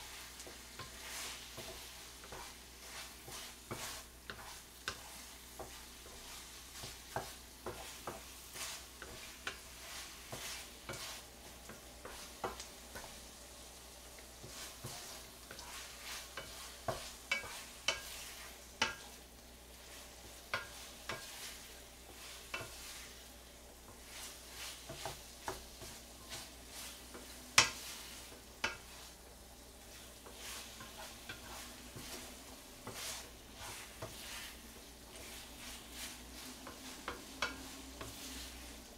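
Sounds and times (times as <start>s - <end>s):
oil sizzling in a frying pan: 0.0s - 38.9s
spatula scraping a pan: 0.0s - 38.9s.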